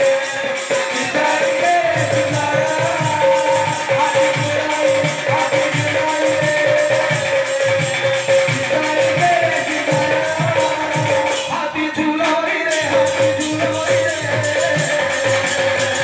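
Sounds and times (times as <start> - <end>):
jingling cymbals: 0.0 - 16.0.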